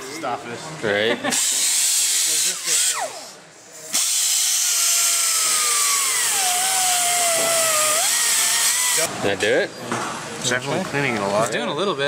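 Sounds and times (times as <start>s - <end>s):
air hiss: 1.3s - 8.8s
air grinder whining on metal: 1.3s - 9.1s.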